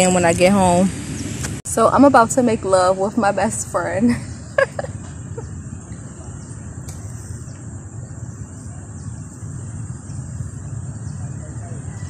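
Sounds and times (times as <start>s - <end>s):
low rumble of traffic: 0.0s - 12.0s
high insect drone: 2.6s - 12.0s.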